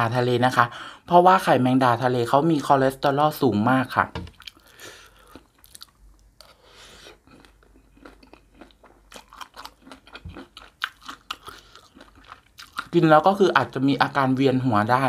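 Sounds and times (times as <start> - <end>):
chewing crunchy salad: 4.3 - 13.4.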